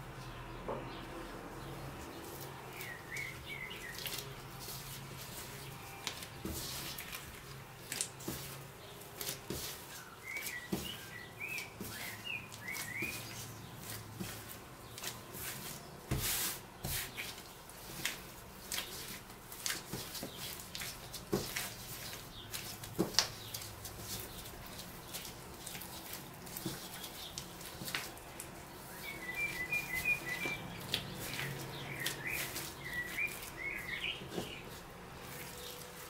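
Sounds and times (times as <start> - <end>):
small bird chirping: 0.2 - 4.3, 9.9 - 13.8, 28.8 - 34.8
dough slapping on countertop: 6.1 - 28.6.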